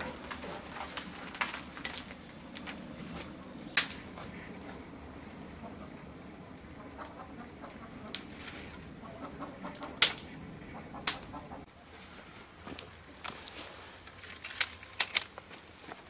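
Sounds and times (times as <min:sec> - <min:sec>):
dry twigs crackling: 0:00.0 - 0:16.0
hens clucking: 0:04.1 - 0:11.8.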